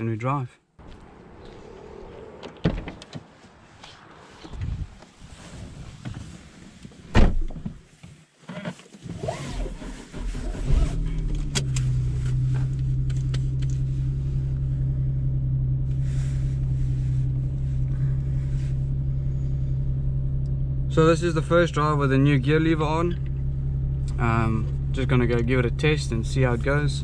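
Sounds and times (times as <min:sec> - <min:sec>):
car engine starting and idling: 0:00.8 - 0:07.5, 0:09.0 - 0:27.0
sharp thump: 0:07.1 - 0:07.7.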